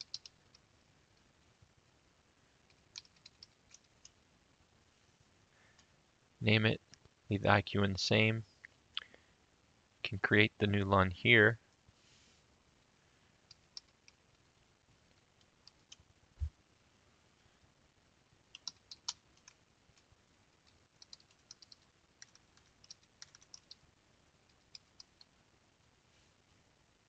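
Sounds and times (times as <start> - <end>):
typing on computer keyboard: 0.0 - 0.6, 2.7 - 4.2, 13.5 - 14.2, 15.6 - 16.0, 18.5 - 23.8, 24.5 - 25.3.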